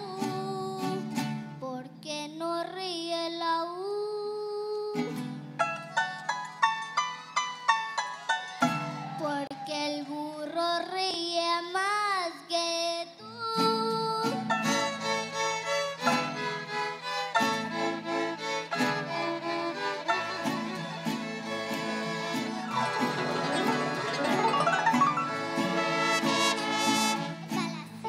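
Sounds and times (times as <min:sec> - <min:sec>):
mariachi band playing: 0:05.1 - 0:10.2, 0:14.2 - 0:28.0.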